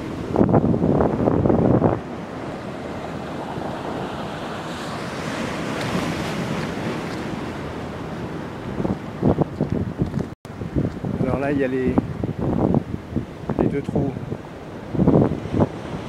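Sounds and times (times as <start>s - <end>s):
sea surf breaking on concrete: 0.0s - 9.0s
wind buffeting microphone: 0.0s - 16.0s.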